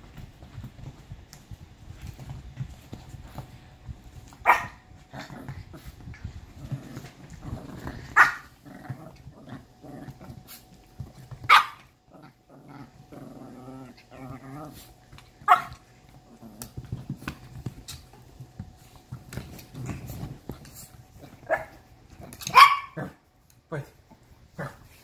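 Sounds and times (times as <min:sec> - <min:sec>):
dog growling: 0:05.0 - 0:10.7, 0:12.0 - 0:15.1, 0:16.1 - 0:17.2.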